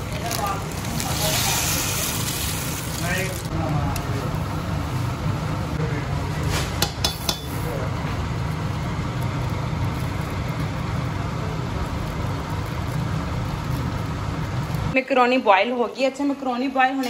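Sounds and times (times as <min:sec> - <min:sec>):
water boiling in a pot: 0:00.0 - 0:15.3
metal spoon clinking on pot: 0:06.8 - 0:07.6.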